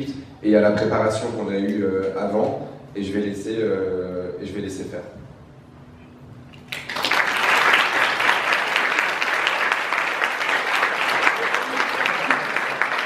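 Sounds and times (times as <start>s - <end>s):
audience applauding: 6.7s - 13.0s.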